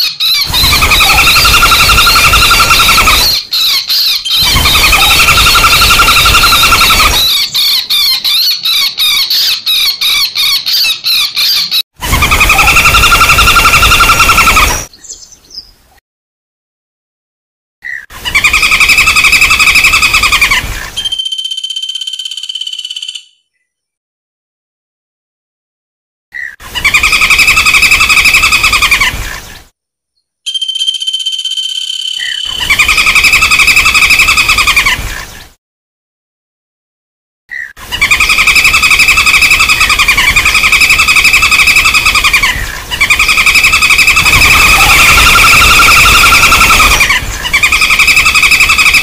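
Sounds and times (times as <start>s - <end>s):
woodpecker fast trill: 0.0s - 14.9s, 21.0s - 23.4s, 30.5s - 34.8s, 38.0s - 49.0s
woodpecker rattling call: 0.0s - 14.9s, 21.1s - 23.3s, 30.5s - 34.8s, 43.0s - 49.0s.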